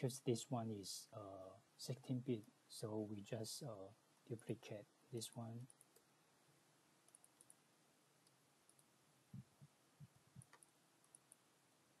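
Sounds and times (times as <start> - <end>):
computer mouse clicks: 7.1 - 7.6, 8.2 - 8.9, 10.3 - 11.4.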